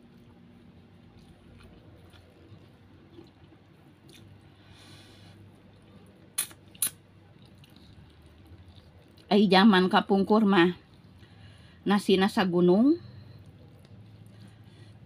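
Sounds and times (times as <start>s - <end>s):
faint chewing: 0.0s - 9.3s, 13.0s - 15.0s.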